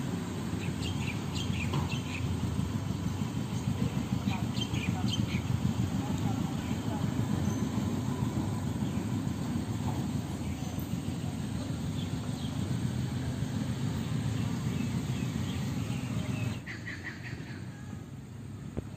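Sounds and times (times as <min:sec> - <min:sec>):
low outdoor rumble: 0:00.0 - 0:18.9
bird chirps: 0:00.6 - 0:02.3.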